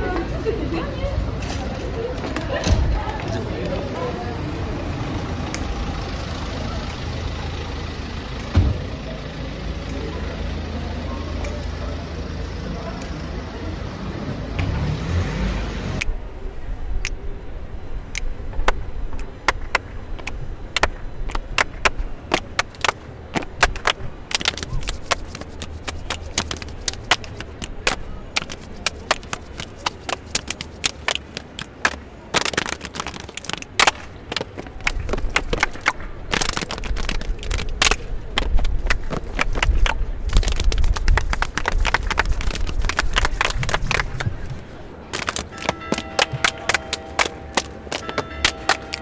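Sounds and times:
hand claps: 19.5s - 49.0s.

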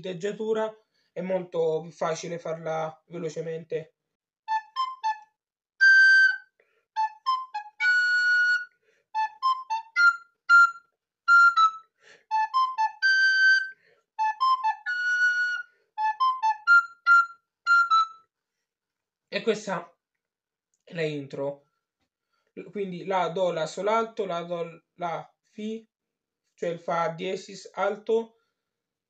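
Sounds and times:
recorder playing a brisk melody: 4.5s - 6.4s, 7.0s - 18.2s.

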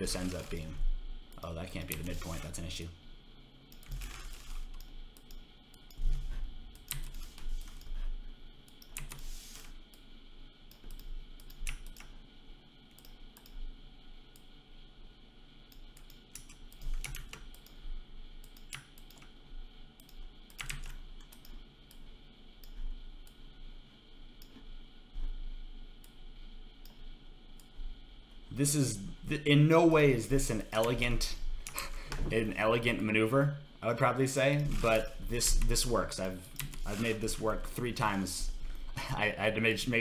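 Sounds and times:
mouse and keyboard clicking: 6.8s - 7.9s.

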